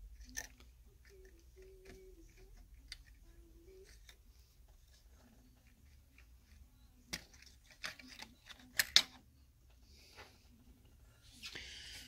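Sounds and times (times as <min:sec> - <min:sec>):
plastic and metal parts clicking: 0:00.2 - 0:09.2.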